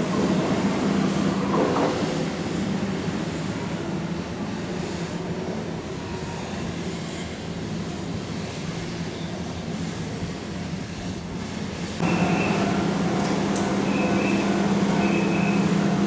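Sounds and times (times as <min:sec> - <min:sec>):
electric train humming: 0:11.8 - 0:16.0.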